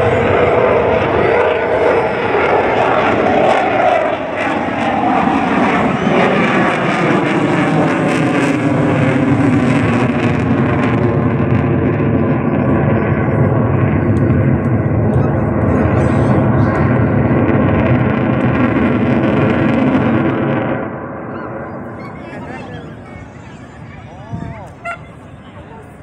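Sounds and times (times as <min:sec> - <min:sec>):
jet engine roar: 0:00.0 - 0:26.0.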